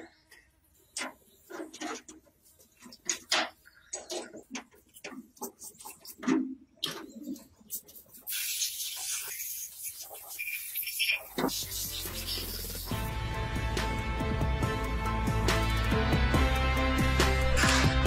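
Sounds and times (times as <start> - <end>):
compressed air hissing: 8.2 - 13.1.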